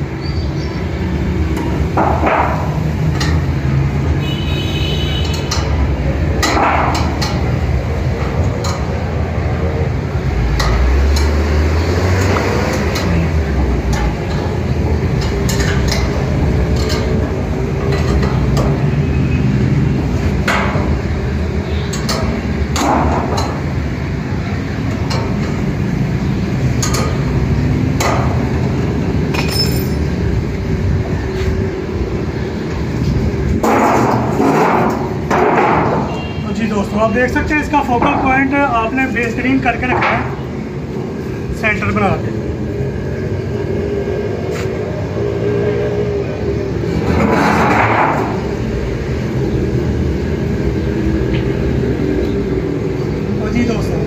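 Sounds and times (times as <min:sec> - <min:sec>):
metal rods clinking: 0:29.3 - 0:30.2.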